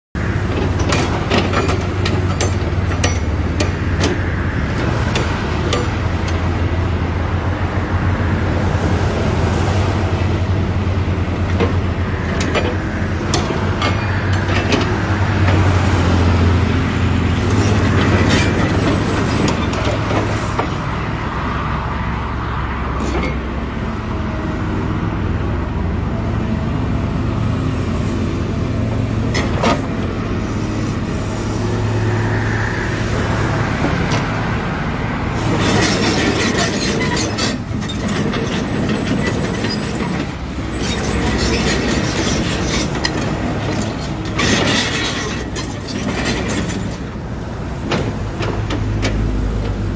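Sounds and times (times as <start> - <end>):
excavator diesel engine humming: 0.2 - 49.9
steel tracks clattering: 0.4 - 6.6, 17.3 - 20.9, 35.3 - 49.8.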